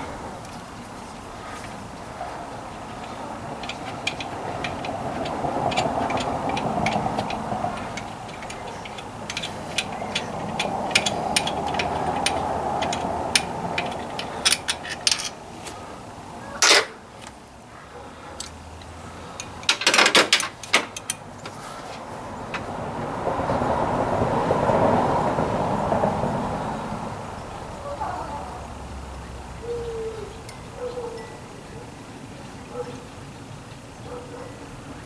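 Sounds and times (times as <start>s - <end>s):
loud metal clanks: 3.0s - 15.4s, 16.6s - 17.0s, 19.6s - 21.2s
wrench clicking on metal: 3.0s - 15.8s, 16.6s - 17.0s, 18.4s - 21.3s.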